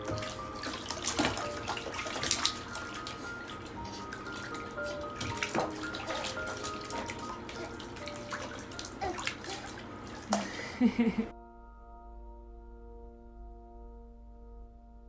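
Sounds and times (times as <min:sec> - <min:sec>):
water splashing in bathtub: 0:00.0 - 0:11.3.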